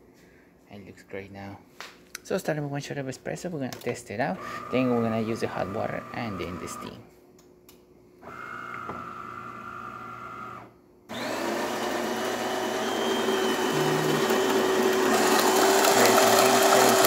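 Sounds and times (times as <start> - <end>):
coffee grinder grinding beans: 4.4 - 7.0, 11.1 - 17.0
espresso machine motor whine: 4.4 - 7.0, 8.2 - 17.0.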